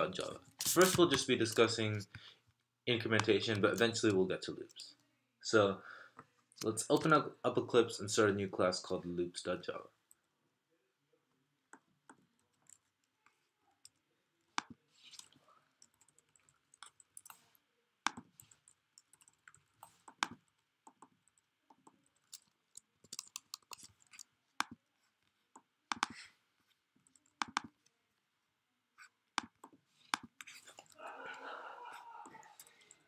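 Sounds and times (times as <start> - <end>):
keyboard and mouse clicks: 14.6 - 17.5, 18.1 - 24.8, 25.5 - 26.2, 27.0 - 27.9, 29.3 - 31.0.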